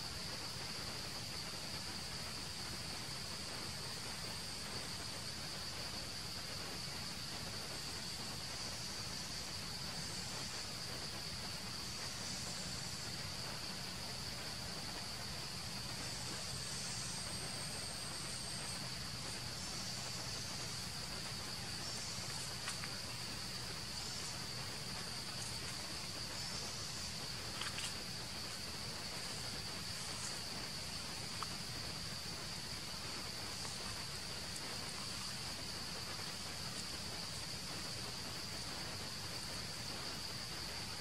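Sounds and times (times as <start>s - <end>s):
insects droning: 0.0s - 41.0s.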